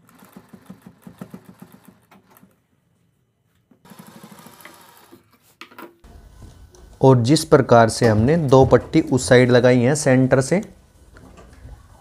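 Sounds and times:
sewing machine stitching: 0.0 - 2.5, 3.9 - 5.2.

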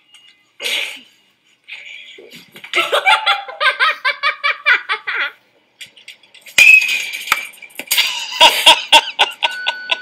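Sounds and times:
laughter: 2.7 - 5.4, 7.9 - 10.0.

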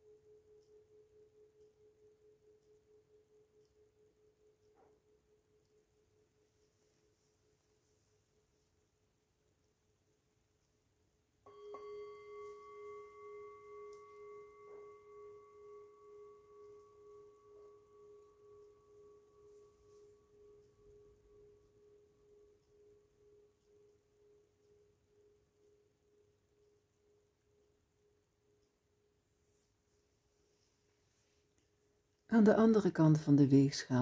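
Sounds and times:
singing bowl ringing: 0.0 - 7.7, 11.4 - 29.1.

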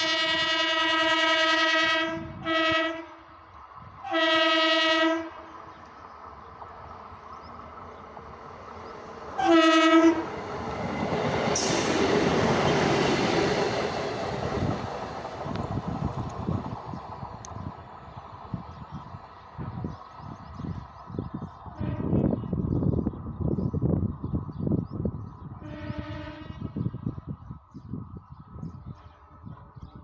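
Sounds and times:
train horn blasts: 0.0 - 3.3, 4.0 - 5.5, 9.4 - 10.4, 21.8 - 22.3, 25.6 - 26.8
train wheels and engine rumbling: 1.8 - 26.2.

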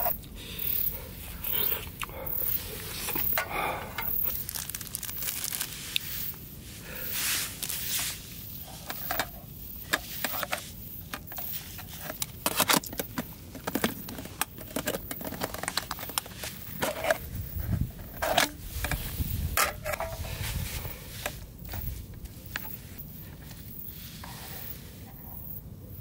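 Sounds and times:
packaging crinkling and tearing: 4.0 - 6.3, 12.2 - 17.3.

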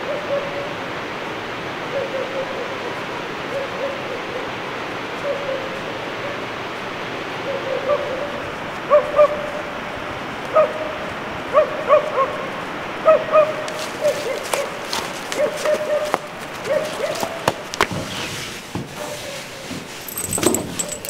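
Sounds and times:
dog barking: 8.9 - 9.5, 10.5 - 10.9, 11.5 - 17.4.

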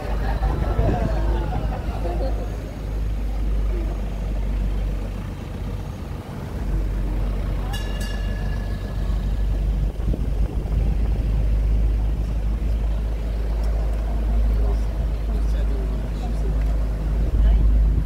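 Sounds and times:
tram rumbling: 0.0 - 18.0.

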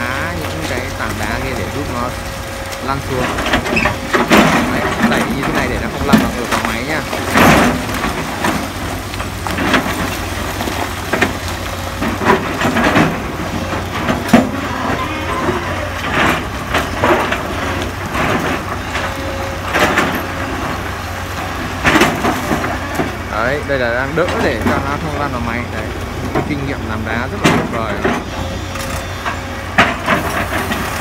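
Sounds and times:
excavator diesel engine running: 0.0 - 31.0
rocks knocking and tumbling: 0.0 - 31.0.

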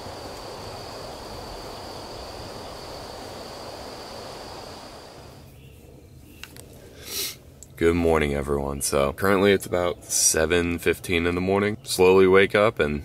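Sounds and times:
insect chorus trilling: 0.0 - 5.4
background hiss: 0.0 - 13.0.

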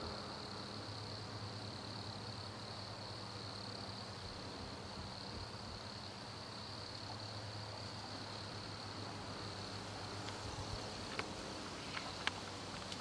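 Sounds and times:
crickets singing: 0.0 - 13.0
low steady hum: 0.0 - 13.0.

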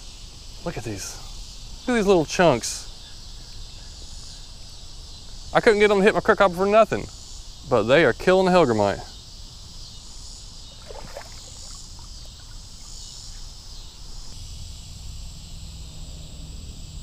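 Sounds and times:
high insect drone: 0.0 - 17.0
water sloshing: 10.7 - 13.0.

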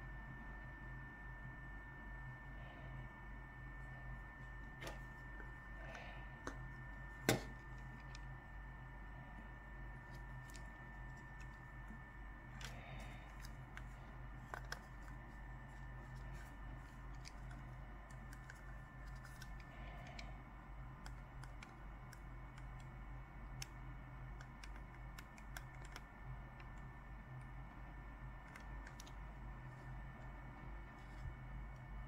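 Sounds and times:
electrical hum: 0.0 - 32.0
computer mouse clicks: 21.0 - 27.5, 28.4 - 29.2.

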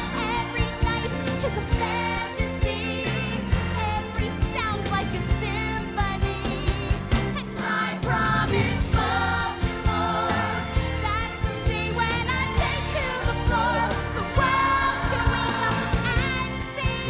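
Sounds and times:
band playing show tune: 0.0 - 17.0
woman singing: 0.0 - 17.0.

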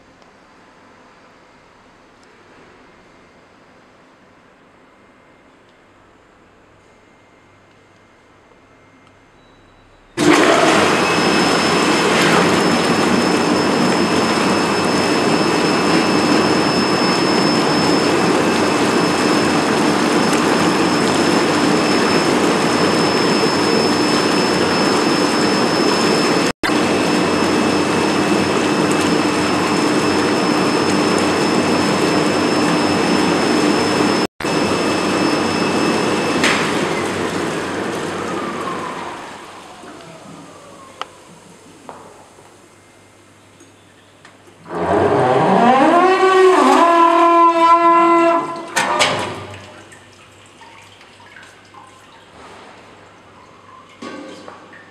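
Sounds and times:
water churning and bubbling: 10.2 - 34.6
motor whine: 10.2 - 42.0, 44.6 - 48.4.

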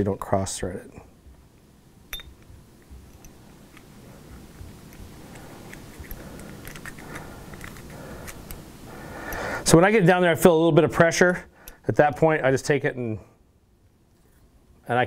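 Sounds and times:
hand-handling rustle: 2.1 - 9.5
metal key clicking and scraping: 5.3 - 8.6.

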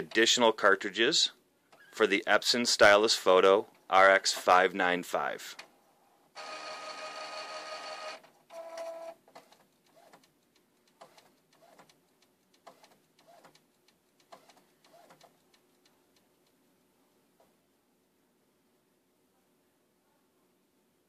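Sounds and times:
printer mechanism whining: 6.4 - 9.2
printer whirs and ticks: 6.4 - 10.3.

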